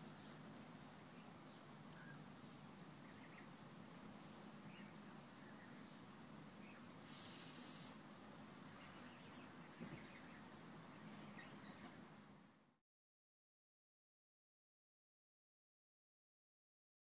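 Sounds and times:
short hiss: 7.0s - 8.0s.

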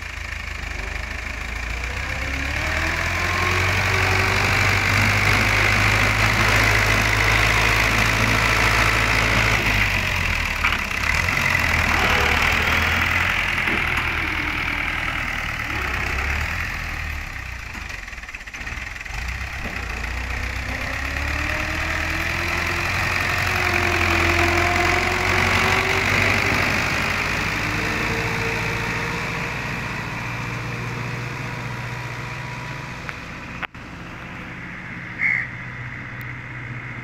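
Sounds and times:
tractor diesel engine under load: 0.0s - 37.0s.

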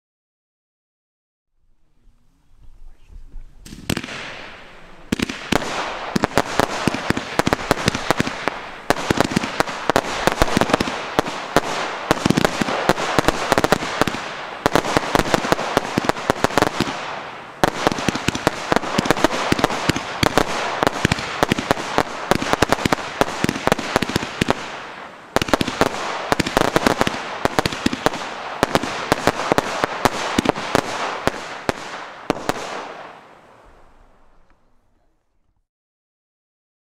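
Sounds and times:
firework launch thumps: 3.4s - 11.0s
sharp firework cracks: 3.6s - 34.6s.

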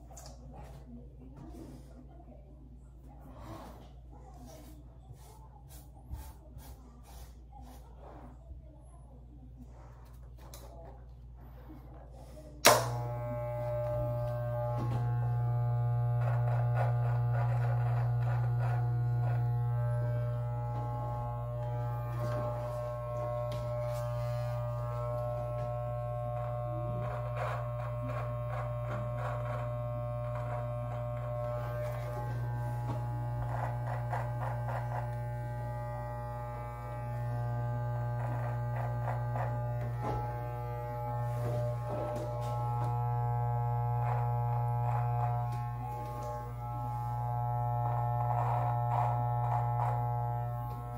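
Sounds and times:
electric beard trimmer buzzing: 12.6s - 50.9s.

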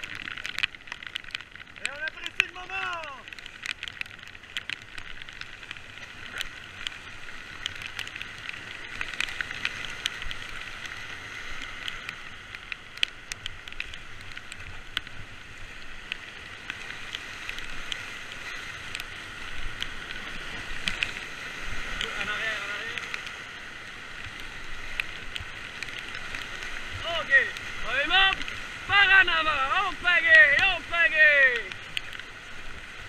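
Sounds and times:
whitewater rapids rushing: 16.9s - 33.0s.

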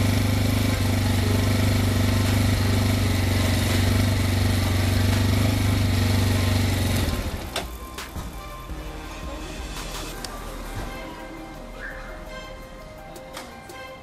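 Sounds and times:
motorcycle engine shutting off: 0.0s - 8.5s
motorcycle engine idling: 0.0s - 8.6s.

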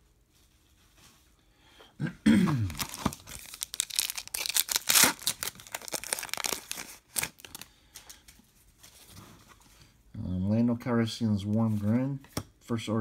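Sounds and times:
foil wrapper tearing and crinkling: 2.7s - 7.7s.

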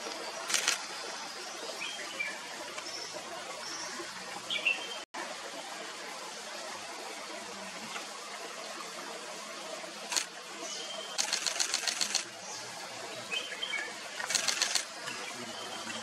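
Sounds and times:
camera shutter clicking: 0.5s - 0.8s, 11.2s - 12.2s, 14.3s - 14.9s.

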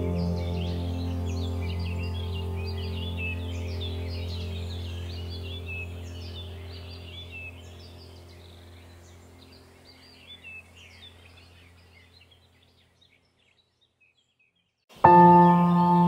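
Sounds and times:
low steady drone: 0.0s - 11.9s
small birds chirping: 0.0s - 16.0s.

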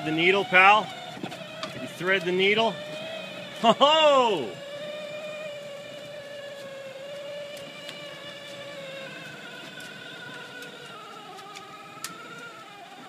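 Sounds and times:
electric toy motor whining: 0.0s - 13.0s
plastic wheels ticking: 5.4s - 13.0s.

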